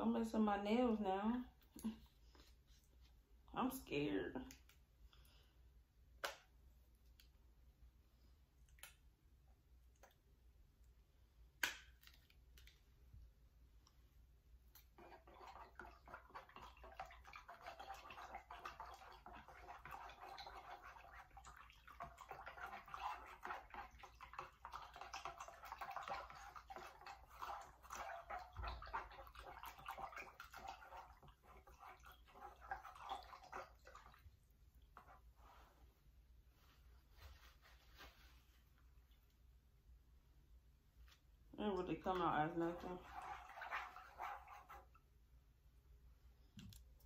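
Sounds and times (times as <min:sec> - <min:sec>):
hand stirring water in a pot: 0:14.6 - 0:35.6, 0:41.7 - 0:45.2.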